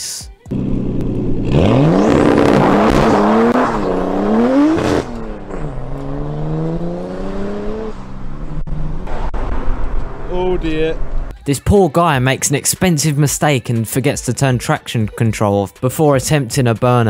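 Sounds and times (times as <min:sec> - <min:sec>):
car engine accelerating: 0:00.5 - 0:11.3.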